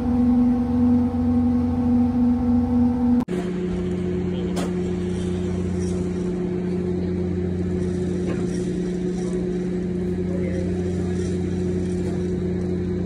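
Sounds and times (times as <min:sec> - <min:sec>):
ship engine humming: 0:00.0 - 0:13.0.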